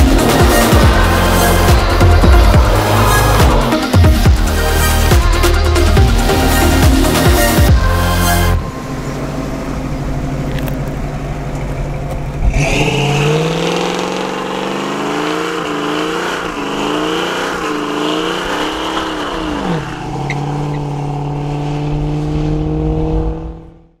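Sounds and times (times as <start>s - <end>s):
tyres screeching: 0.0s - 5.1s
car engine revving: 0.0s - 24.0s.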